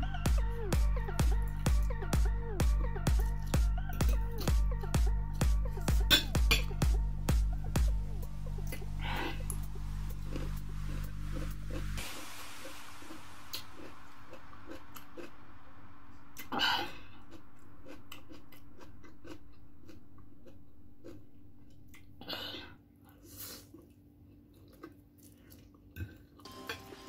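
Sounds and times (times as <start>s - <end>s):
wet mouth clicks: 17.2s - 22.2s.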